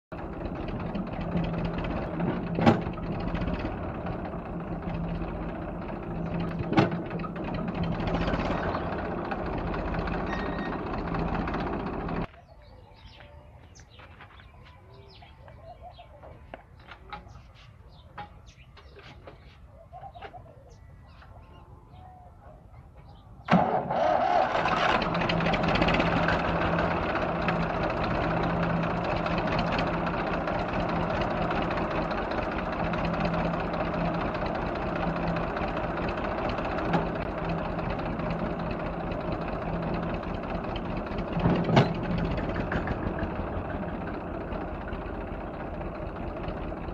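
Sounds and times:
diesel tractor engine running: 0.1s - 13.2s, 23.4s - 46.9s
birds chirping: 4.5s - 23.6s.

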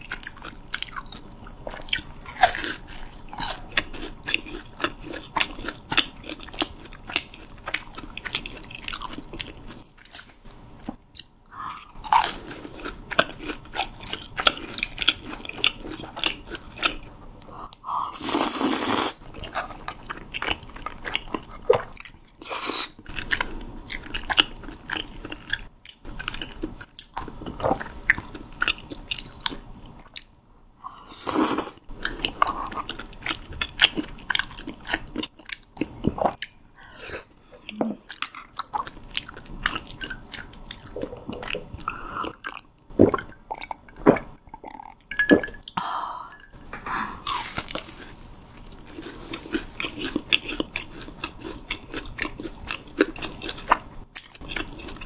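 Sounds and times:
crunchy chewing: 47.2s - 55.0s.

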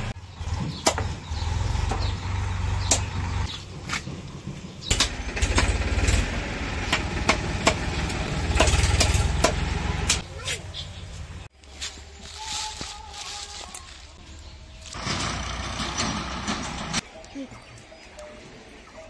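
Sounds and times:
engine rumbling: 0.0s - 12.2s, 13.4s - 17.3s.

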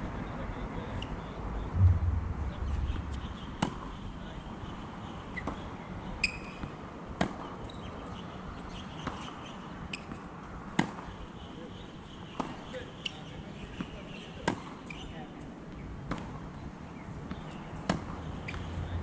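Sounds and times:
shoe squeak on court: 6.2s - 6.7s, 9.9s - 10.2s
tennis balls struck by rackets: 6.6s - 7.5s, 10.1s - 11.1s, 12.4s - 12.7s, 13.7s - 14.8s, 16.1s - 16.5s, 17.3s - 18.7s.

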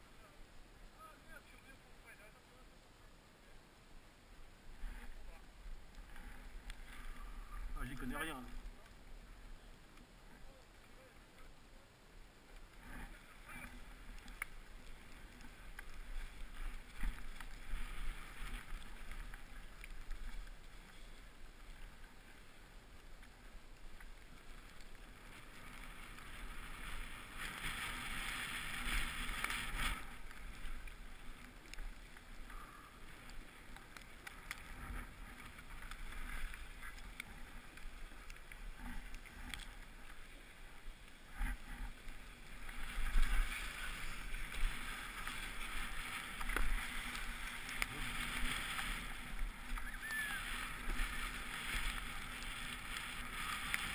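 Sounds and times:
snow hissing and scraping: 14.7s - 22.7s, 24.4s - 31.4s, 41.9s - 53.9s
wind rumbling on microphone: 40.9s - 53.9s.

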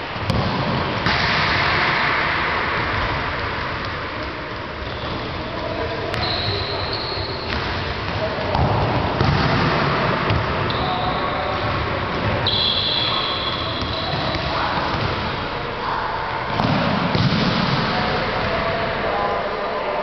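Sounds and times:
balls kicked and bouncing: 0.1s - 1.9s, 2.7s - 12.5s, 16.4s - 18.2s.

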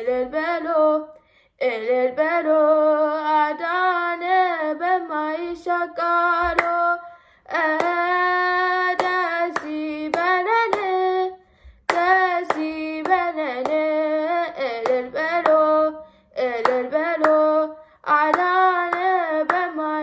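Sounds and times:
girl singing a hymn: 0.0s - 20.0s
hand claps: 6.4s - 6.8s, 7.7s - 8.1s, 8.9s - 11.0s, 11.9s - 13.9s, 14.8s - 15.7s, 16.6s - 17.5s, 18.2s - 19.8s.

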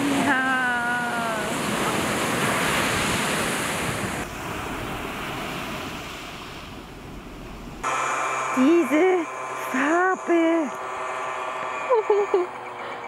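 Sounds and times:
sea waves breaking on beach: 0.0s - 11.9s.

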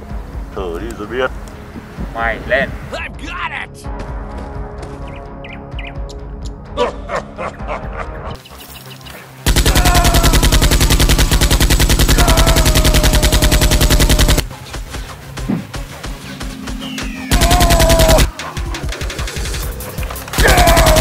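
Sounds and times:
automatic gunfire: 9.5s - 14.4s, 17.3s - 18.3s, 20.4s - 21.0s.

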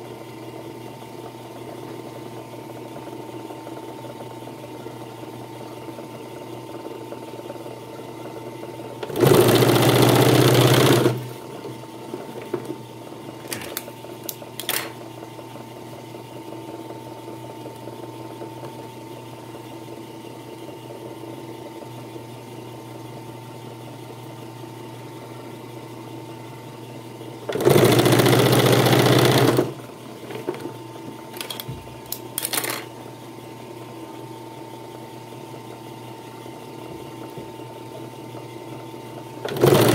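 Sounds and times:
sewing machine stitching leather: 9.0s - 11.4s, 27.5s - 30.7s, 39.4s - 39.9s.

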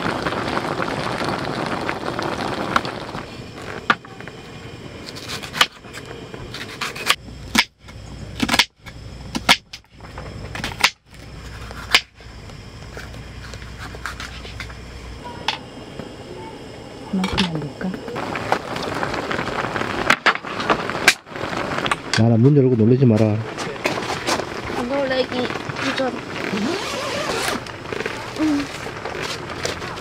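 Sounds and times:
stew bubbling in a pot: 0.0s - 16.0s, 16.7s - 30.0s.

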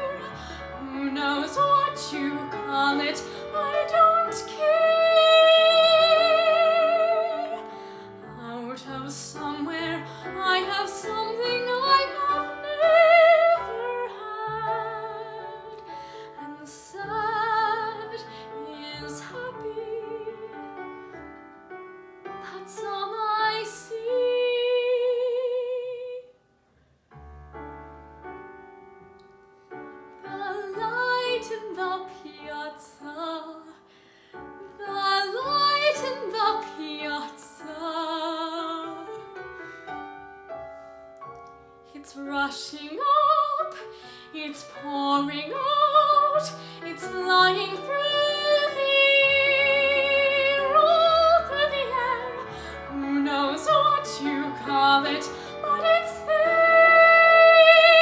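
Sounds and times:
woman singing with vibrato: 0.0s - 7.7s, 42.0s - 58.0s
piano accompaniment: 0.0s - 26.2s, 27.0s - 58.0s.

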